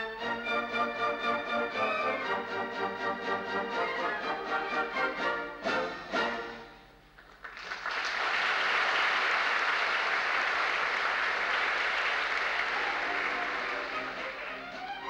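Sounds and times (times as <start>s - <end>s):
audience applauding: 7.2s - 15.0s.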